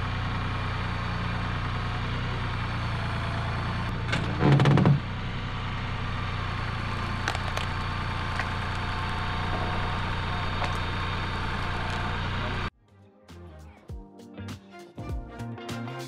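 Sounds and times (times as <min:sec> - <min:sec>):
tractor engine running: 0:00.0 - 0:12.7.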